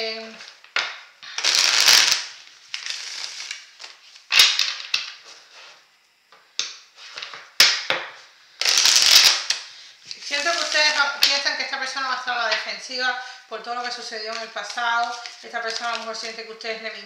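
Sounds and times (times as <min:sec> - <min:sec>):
cards being shuffled: 0:01.3 - 0:05.4, 0:14.2 - 0:16.4.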